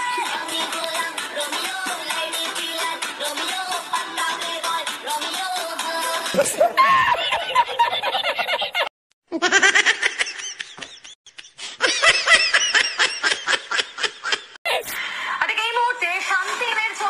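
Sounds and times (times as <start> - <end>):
man laughing heartily: 6.3 - 14.6.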